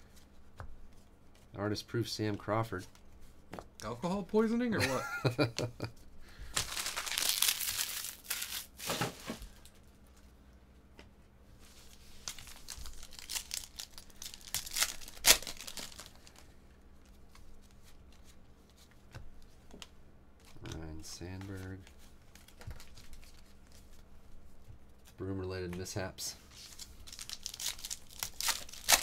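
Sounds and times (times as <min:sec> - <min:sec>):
foil wrapper crinkling and tearing: 0:06.5 - 0:09.6, 0:12.2 - 0:16.5, 0:22.3 - 0:23.5, 0:26.6 - 0:29.0.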